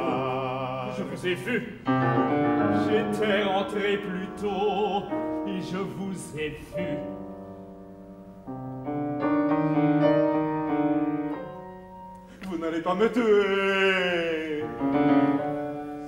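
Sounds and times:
person singing with vibrato: 0.0 - 7.4, 12.4 - 16.0
grand piano chords: 0.0 - 16.0.

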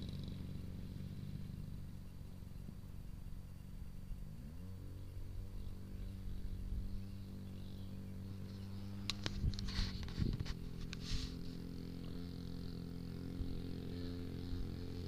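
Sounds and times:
model airplane engine: 0.0 - 15.0
rustling: 9.0 - 11.6.

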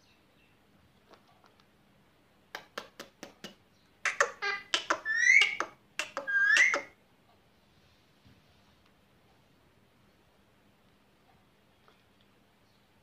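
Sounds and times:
parakeet chirping and squawking: 4.0 - 7.0.

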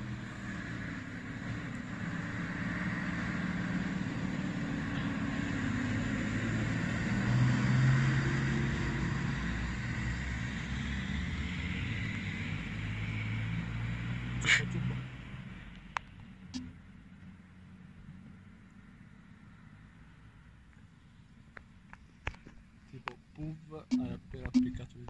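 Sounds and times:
fire engine driving past: 0.0 - 14.4.

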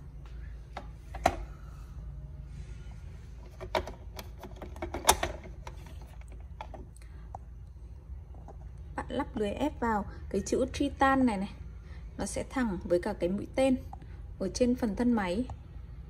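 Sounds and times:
plastic parts knocking and clicking: 3.4 - 6.9.

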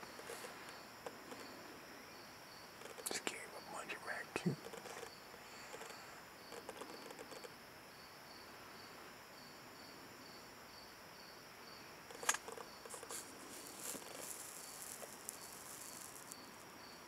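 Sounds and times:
insects chirping: 0.0 - 17.0
sharp click: 12.2 - 12.6.

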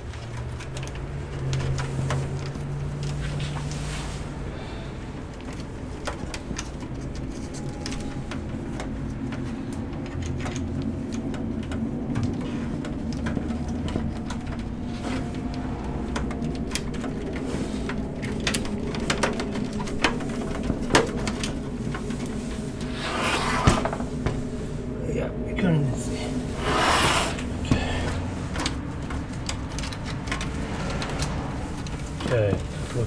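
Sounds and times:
connectors clicking against metal chassis: 0.0 - 22.9, 27.4 - 33.0
steady low hum: 1.2 - 33.0.

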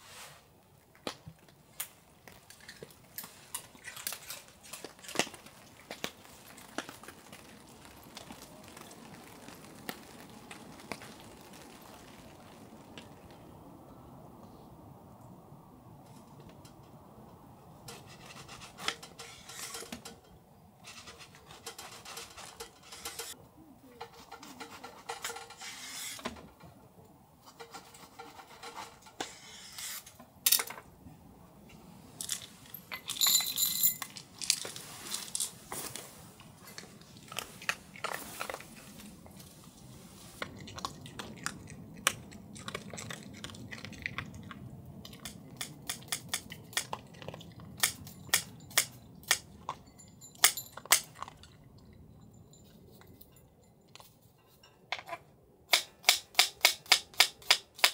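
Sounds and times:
crunching: 0.9 - 13.4
utensils clinking on dishes: 32.3 - 34.6.

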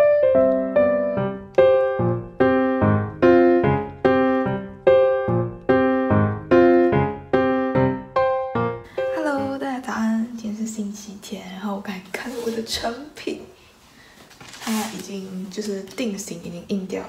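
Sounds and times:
gentle piano melody: 0.0 - 10.4.

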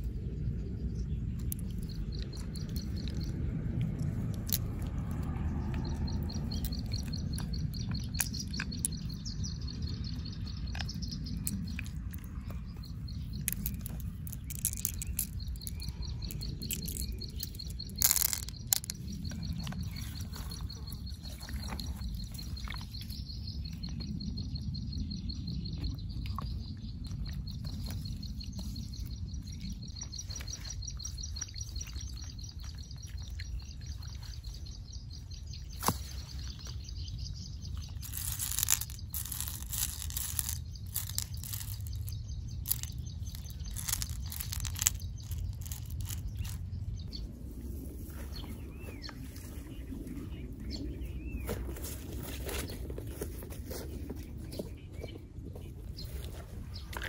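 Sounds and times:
birds chirping: 0.0 - 57.0
low steady rumble: 0.0 - 57.0
shells clicking and rustling: 13.2 - 21.0, 37.7 - 46.7.

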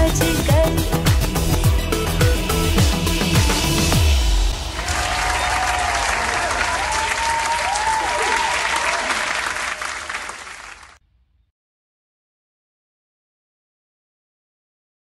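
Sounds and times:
crowd applauding: 4.6 - 11.0.

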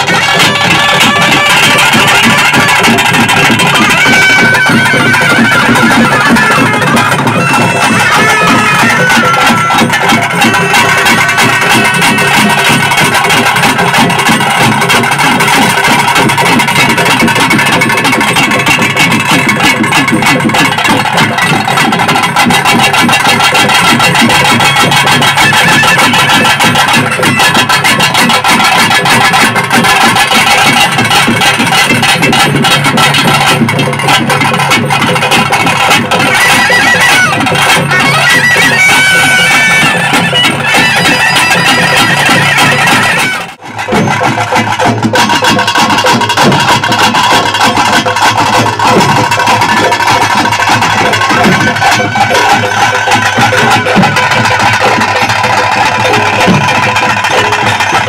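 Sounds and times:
reed pipe gliding melody: 0.0 - 13.1, 36.1 - 43.8
fast dense drumming: 0.0 - 58.0.

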